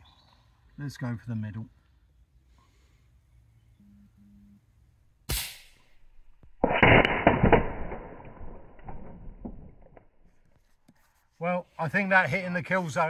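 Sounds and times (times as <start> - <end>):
air rifle shot: 5.3 - 8.8
pellet striking steel target: 5.3 - 9.8.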